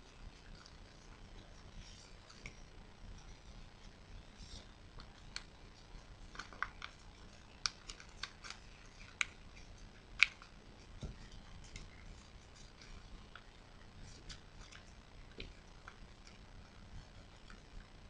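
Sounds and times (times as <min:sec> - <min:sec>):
paper crinkling and snapping: 0:04.4 - 0:17.8.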